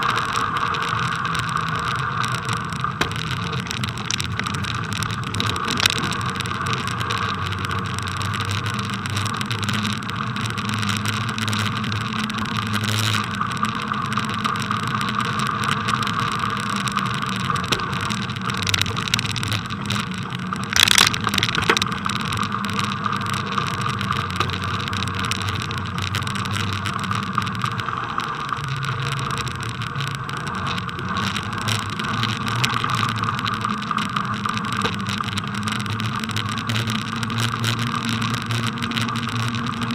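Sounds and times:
bicycle rolling over packed snow: 0.0 - 39.9.

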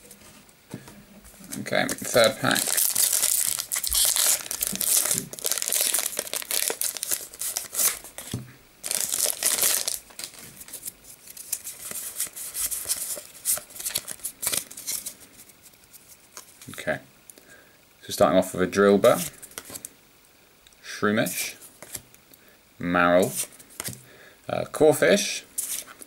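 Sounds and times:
cards rustling and clicking: 1.3 - 15.2, 21.7 - 22.0, 23.3 - 24.0
foil wrapper crinkling and tearing: 1.4 - 15.2.

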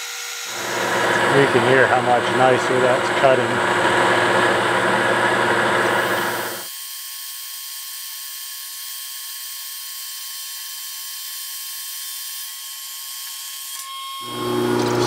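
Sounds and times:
metal lathe cutting: 0.0 - 6.7, 13.8 - 15.0
thin steady whine: 0.5 - 6.7.

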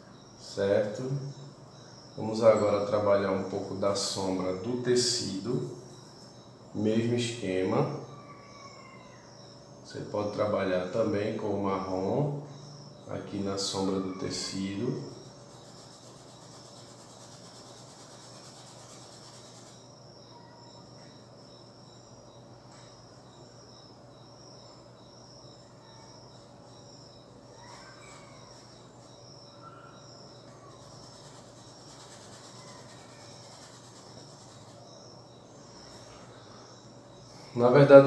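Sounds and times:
insect chirping: 0.0 - 38.0.

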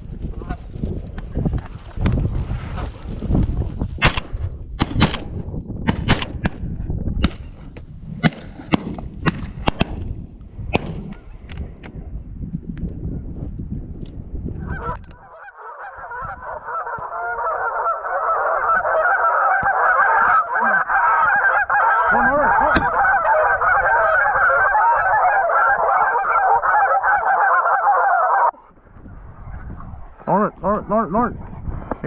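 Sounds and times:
flock of geese honking: 14.6 - 28.6.

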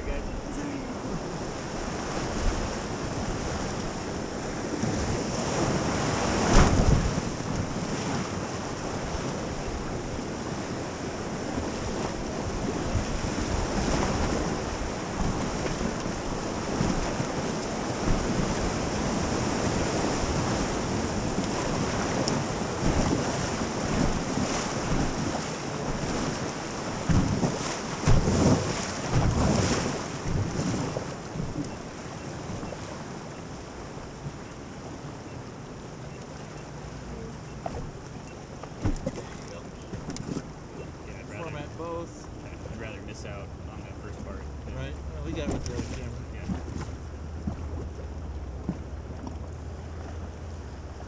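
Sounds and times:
rushing river rapids: 0.0 - 4.4
wind buffeting microphone: 0.0 - 36.2.

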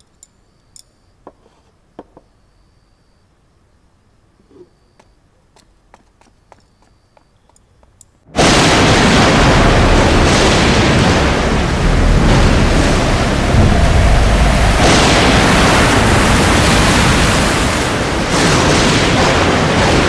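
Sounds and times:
heavy waves breaking: 8.3 - 20.0
wind roaring: 8.3 - 20.0.

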